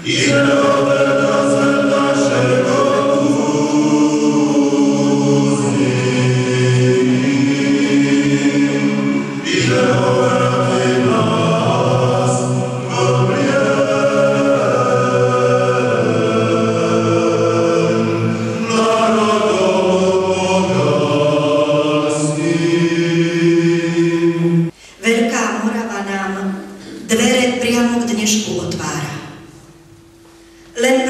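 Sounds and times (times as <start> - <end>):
choir chanting: 0.0 - 24.7.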